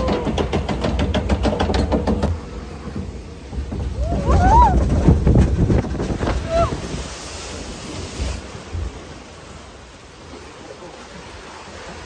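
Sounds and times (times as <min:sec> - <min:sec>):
water rushing and splashing: 0:00.0 - 0:12.0
wind buffeting microphone: 0:02.3 - 0:09.6.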